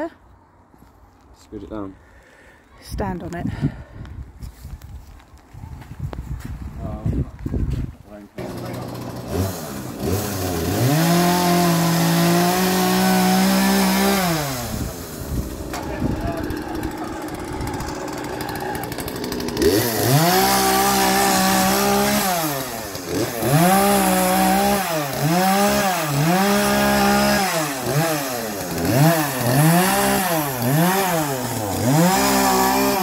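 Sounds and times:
chainsaw idling and revving: 8.4 - 33.0.

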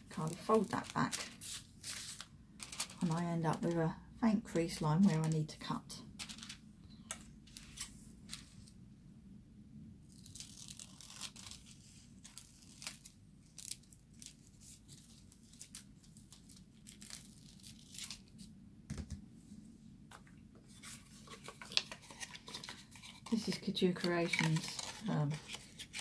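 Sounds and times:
foil crinkling and rustling: 0.0 - 3.7, 6.2 - 6.6, 10.1 - 18.4, 20.7 - 26.0.

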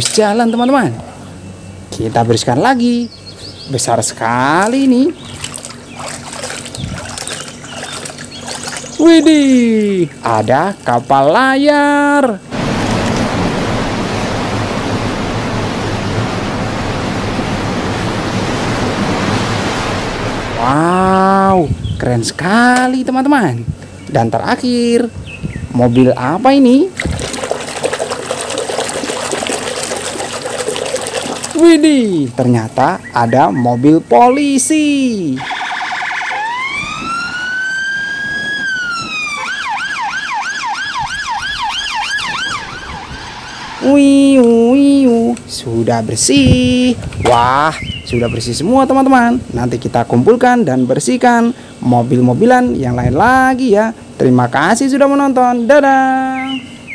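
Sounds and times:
wind: 0.0 - 56.9
open sea water: 2.8 - 21.4, 25.9 - 49.6
police siren wailing and yelping: 35.4 - 43.9.

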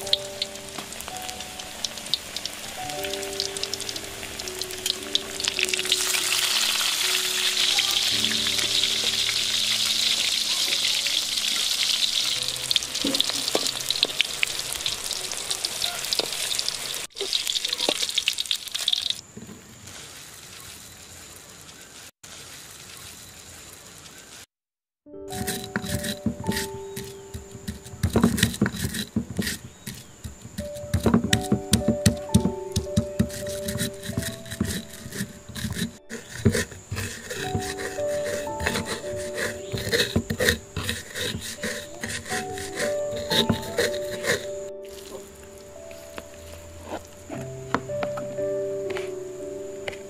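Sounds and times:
soft background music: 0.0 - 14.8, 25.1 - 50.0
food sizzling in hot oil: 0.0 - 19.2.

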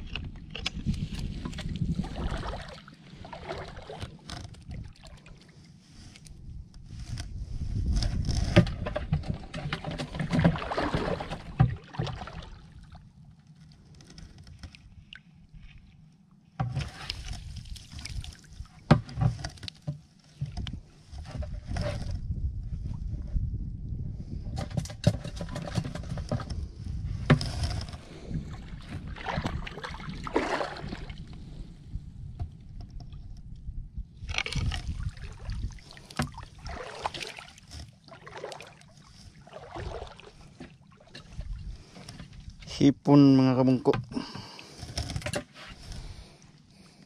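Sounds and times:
water sloshing around rocks: 0.0 - 6.4, 7.8 - 15.9, 16.6 - 22.1, 25.1 - 31.6, 34.2 - 42.8
sharp water splashes: 10.3 - 12.8, 29.0 - 31.2, 34.5 - 40.4.

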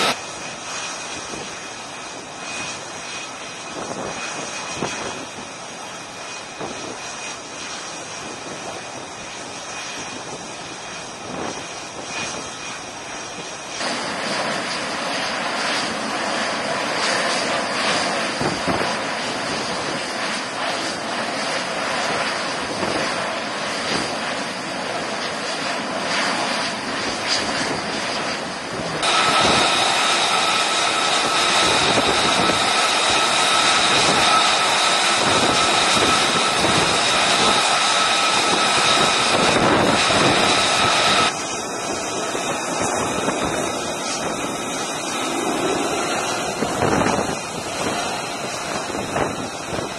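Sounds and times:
jet engine noise: 0.0 - 49.9
high-pitched whine: 23.0 - 49.9.

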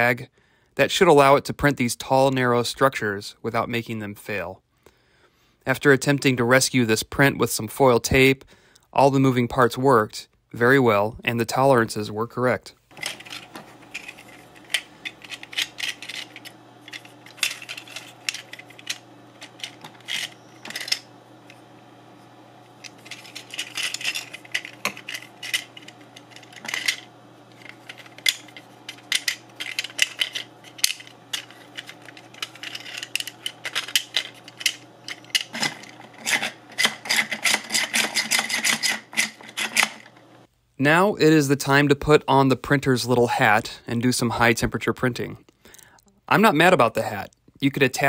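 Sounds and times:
plastic gears clicking and rattling: 13.0 - 21.1, 22.8 - 40.1.

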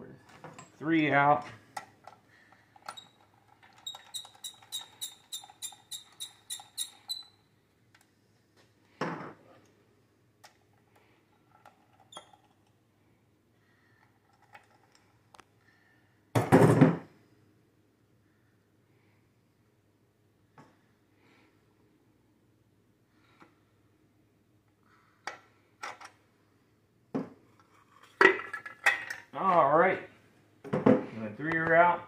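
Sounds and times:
socket ratchet clicking: 2.8 - 7.3.

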